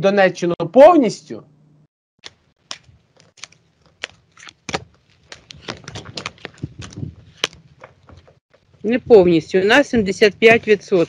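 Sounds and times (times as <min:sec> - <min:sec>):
cards being shuffled: 0:02.2 - 0:08.3.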